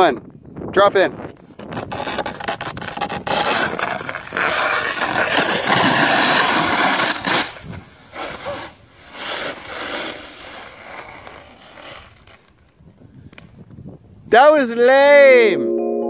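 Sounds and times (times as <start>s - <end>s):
snowboard scraping over icy snow: 1.3s - 12.7s.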